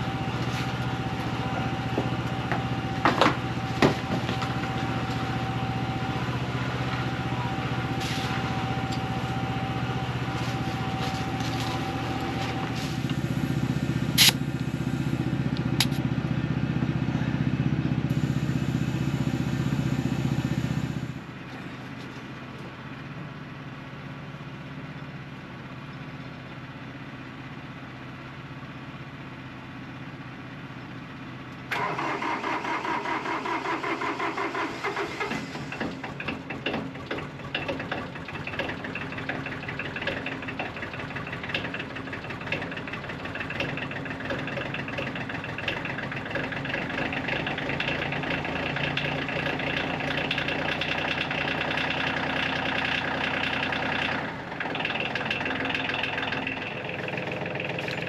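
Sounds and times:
air compressor humming and whining: 0.0s - 16.0s, 17.0s - 21.9s
tractor engine starting and chugging: 0.0s - 58.0s.

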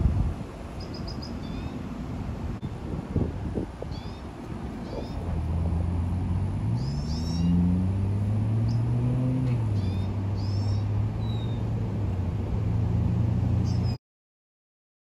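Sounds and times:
high bird chirps: 0.8s - 1.8s, 3.9s - 5.3s, 6.8s - 7.6s, 8.6s - 8.9s, 9.7s - 11.7s, 13.6s - 14.0s.

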